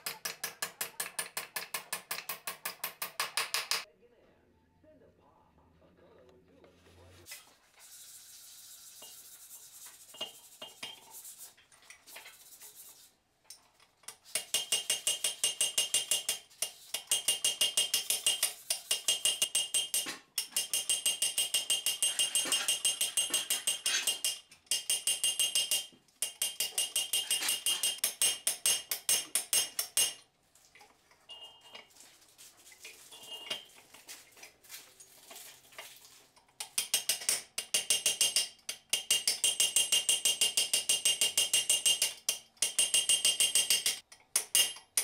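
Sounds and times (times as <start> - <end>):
hammer tapping on metal: 0.0 - 3.9, 14.4 - 30.2, 36.6 - 45.0.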